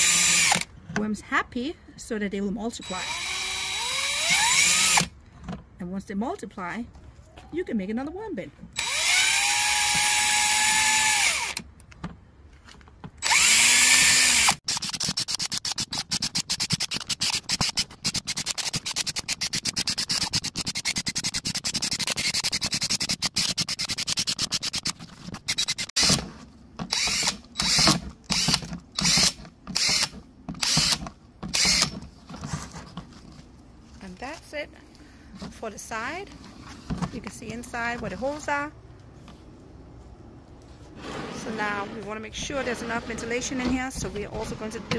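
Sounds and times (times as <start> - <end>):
cordless drill motor whine: 0.0 - 0.7, 2.9 - 5.1, 8.8 - 11.6, 13.2 - 14.6, 26.9 - 31.9
drill drilling through plastic: 0.0 - 0.7, 2.8 - 5.1, 8.8 - 11.6, 13.2 - 21.1, 26.9 - 32.0.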